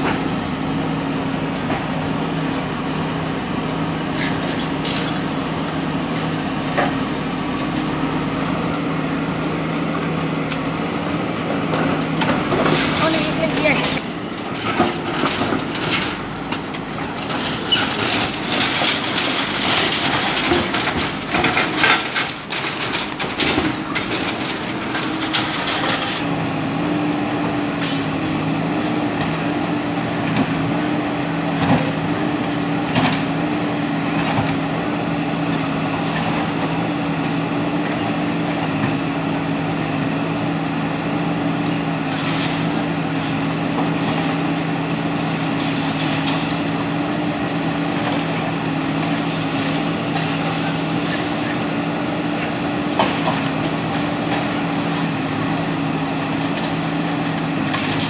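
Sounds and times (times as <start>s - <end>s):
diesel engine running: 0.0s - 58.0s
concrete crashing and crunching: 11.9s - 26.3s.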